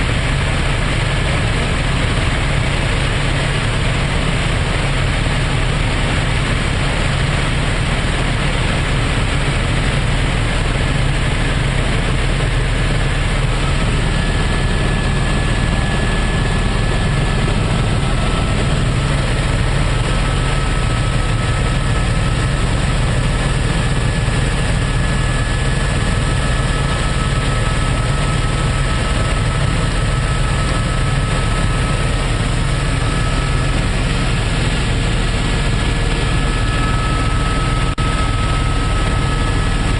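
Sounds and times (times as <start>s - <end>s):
helicopter engine and rotor drone: 0.0s - 39.9s
faint high whine: 10.3s - 39.9s.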